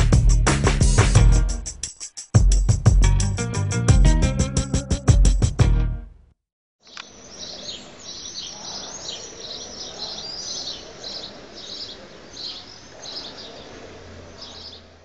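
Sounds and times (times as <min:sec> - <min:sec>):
faint steady background noise: 0:06.8 - 0:15.0
small birds chirping: 0:06.8 - 0:15.0.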